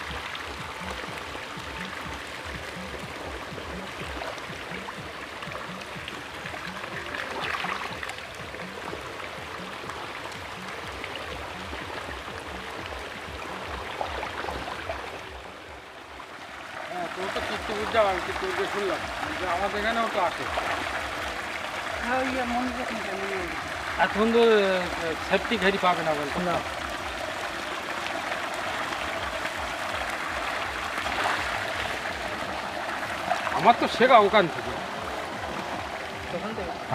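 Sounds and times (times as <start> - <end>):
faint low beat: 0.0 - 16.2
fish splashing in water: 0.0 - 36.9.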